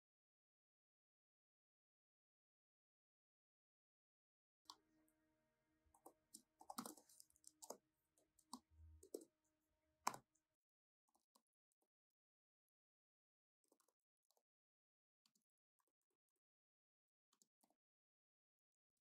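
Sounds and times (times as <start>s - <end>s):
faint keyboard typing: 5.9s - 9.3s.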